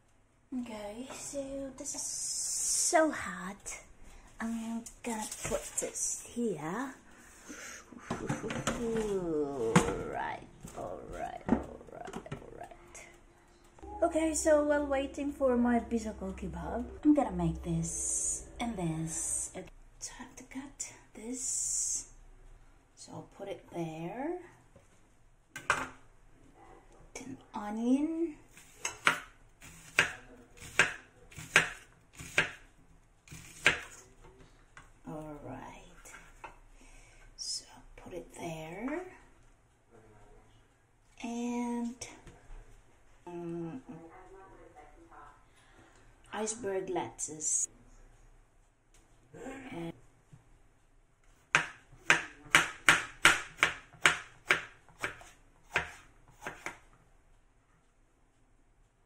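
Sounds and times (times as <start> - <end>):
knife chopping on plastic board: 28.6 - 32.6, 33.3 - 34.0, 51.5 - 56.8.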